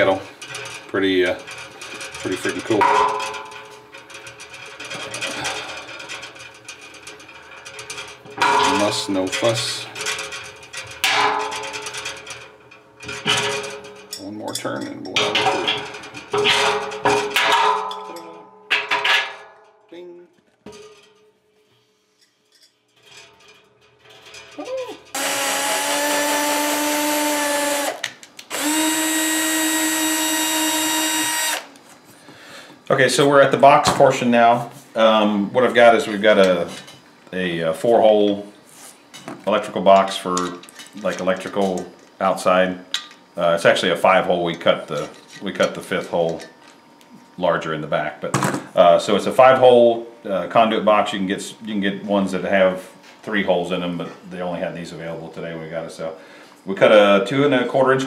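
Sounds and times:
electric drill motor running: 0:25.2 - 0:31.7.

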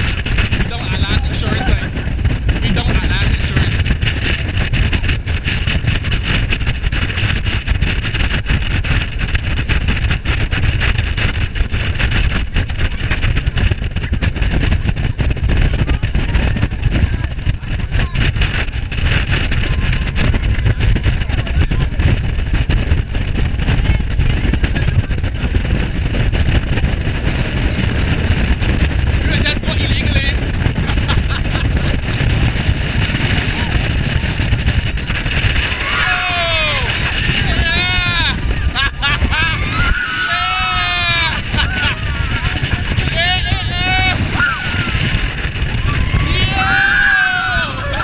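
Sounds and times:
wind: 0:00.0 - 0:48.0
speedboat engine: 0:16.0 - 0:48.0.

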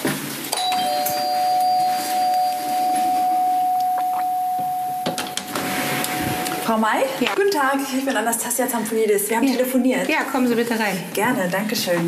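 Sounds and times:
two-tone doorbell ringing: 0:00.6 - 0:07.0.

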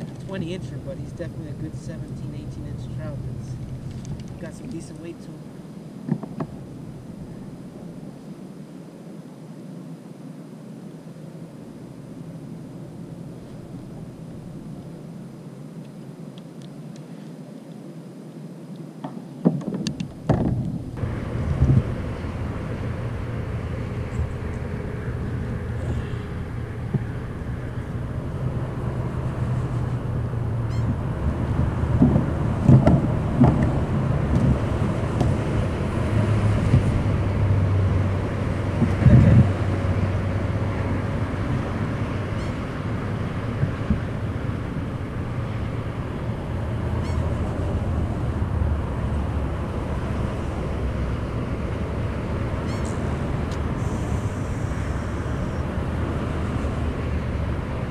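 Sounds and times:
motorboat engine drone: 0:00.0 - 0:57.9
dull thumps against kayak hull: 0:06.1 - 0:06.5, 0:19.0 - 0:20.8, 0:31.9 - 0:34.6.

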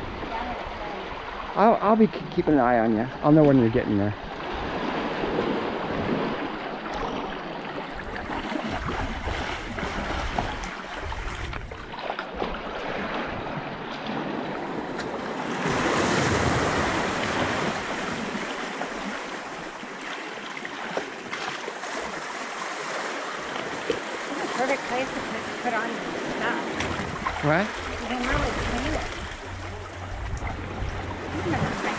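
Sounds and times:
small waves washing over sand: 0:03.3 - 0:31.9
wind buffeting microphone: 0:08.0 - 0:18.5, 0:23.6 - 0:31.9.

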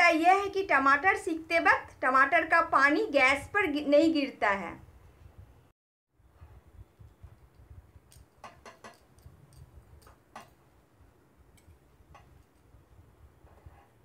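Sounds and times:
utensils clicking on wire mesh: 0:08.1 - 0:10.6.

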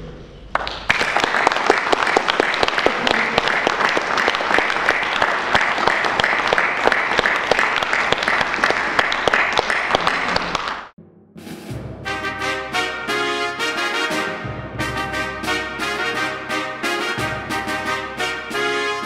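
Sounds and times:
audience applauding: 0:00.5 - 0:10.9.

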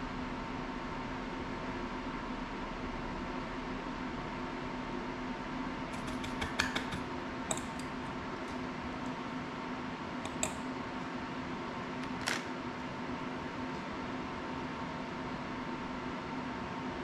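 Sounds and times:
steady low hum: 0:00.0 - 0:17.0
small tools clicking and tapping: 0:05.9 - 0:07.9, 0:10.3 - 0:10.6.

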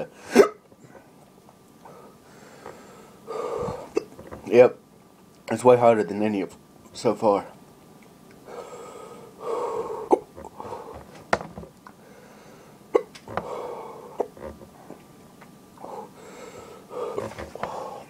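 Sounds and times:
man hiccuping: 0:00.3 - 0:00.6, 0:03.8 - 0:04.1, 0:10.1 - 0:10.4, 0:12.9 - 0:13.2
man breathing: 0:01.8 - 0:04.0, 0:08.4 - 0:11.1, 0:11.9 - 0:14.2, 0:15.8 - 0:18.0.

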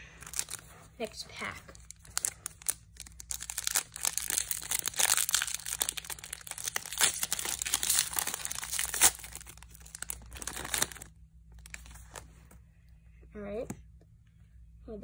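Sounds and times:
foil wrapper crinkling and tearing: 0:00.2 - 0:00.7, 0:01.7 - 0:12.0.

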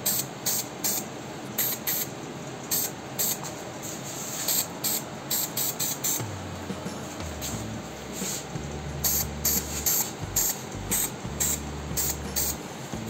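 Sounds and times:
aerosol spray can hissing: 0:04.3 - 0:06.2, 0:08.1 - 0:12.6.

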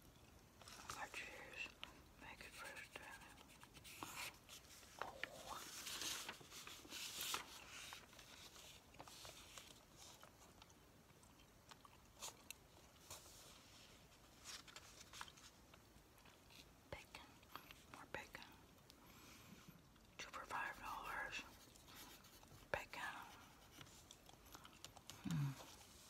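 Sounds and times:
rustling of newspaper sheets: 0:03.4 - 0:09.8.

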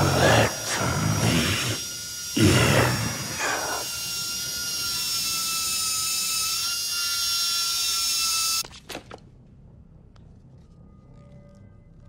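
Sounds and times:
eerie electronic drone: 0:00.0 - 0:08.6.

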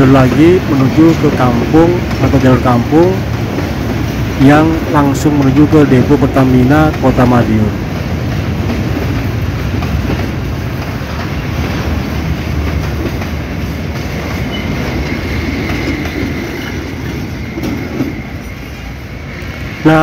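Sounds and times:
train wheels rumbling on track: 0:00.0 - 0:20.0
high wheel squeal: 0:14.4 - 0:19.7.

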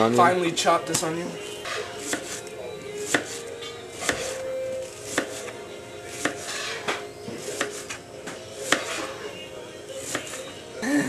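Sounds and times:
knife chopping on cutting board: 0:01.7 - 0:02.4, 0:03.0 - 0:03.4, 0:04.0 - 0:04.4, 0:05.1 - 0:05.5, 0:06.1 - 0:09.2.

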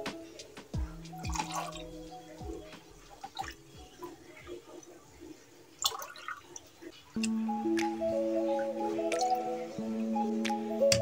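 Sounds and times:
liquid splashing and dripping: 0:01.2 - 0:04.4, 0:05.8 - 0:08.0.

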